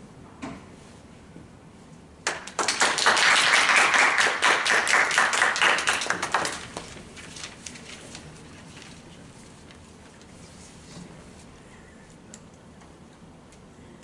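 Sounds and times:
people applauding: 2.2s - 6.9s.

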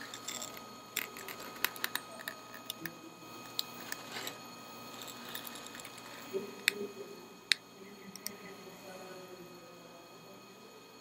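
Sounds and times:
equipment high whine: 0.0s - 11.0s.

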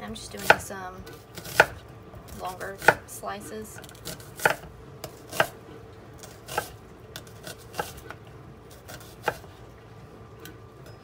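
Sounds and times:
knife slicing onion on board: 0.4s - 3.0s, 3.8s - 5.6s, 6.2s - 9.5s.

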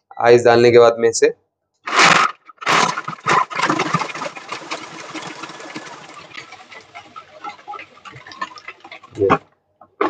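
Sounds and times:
food processor crushing ice: 1.9s - 9.4s
scattered clicks: 2.8s - 9.4s.

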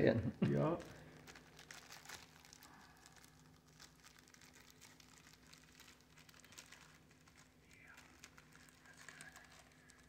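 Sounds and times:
low steady hum: 0.0s - 10.0s
plastic film crinkling: 0.4s - 10.0s.

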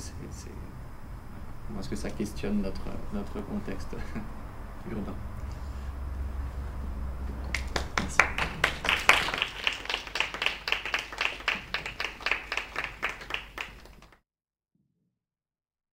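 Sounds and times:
audience applauding: 7.4s - 14.2s.

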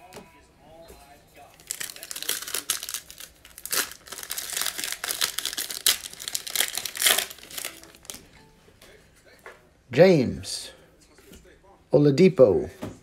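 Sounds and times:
foil wrapper crinkling: 1.4s - 8.3s.

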